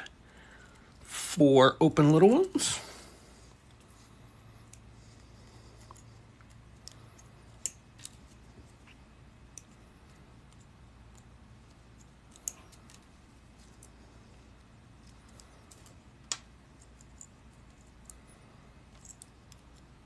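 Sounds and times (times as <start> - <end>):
small metallic clicks of pliers: 5.9 - 8.2, 12.0 - 13.0.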